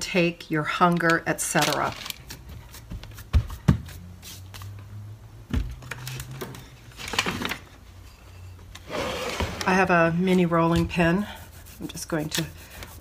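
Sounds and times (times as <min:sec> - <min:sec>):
hands patting dough mixture: 0:01.0 - 0:04.8.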